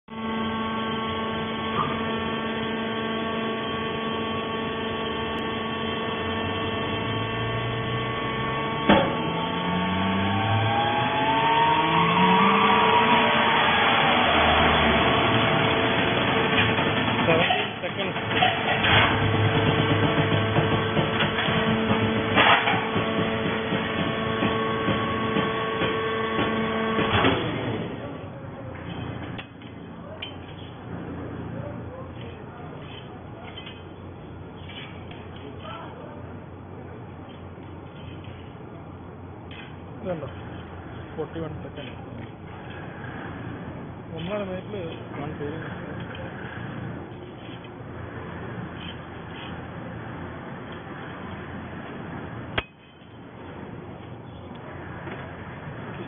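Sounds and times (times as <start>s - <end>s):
baler motor humming and whining: 0.1s - 56.0s
low tones rising in pitch: 3.6s - 17.0s.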